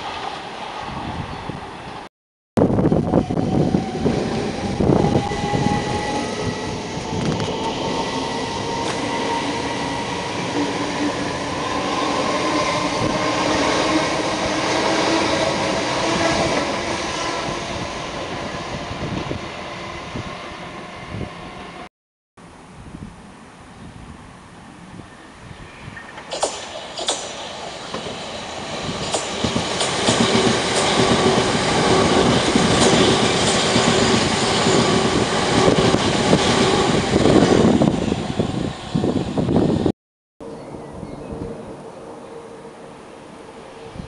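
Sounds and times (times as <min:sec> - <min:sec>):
electric train whine: 0:02.6 - 0:21.9, 0:25.0 - 0:44.0
train wheels rumbling: 0:02.9 - 0:21.6, 0:26.0 - 0:39.9.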